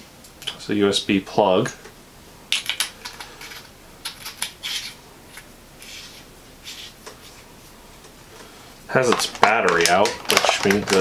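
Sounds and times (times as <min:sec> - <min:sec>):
threads scraping rasps: 0:03.0 - 0:07.4.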